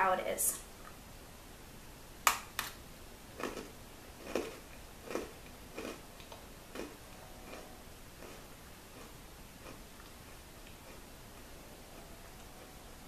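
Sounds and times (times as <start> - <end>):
cookie chewing crunch: 3.3 - 12.8.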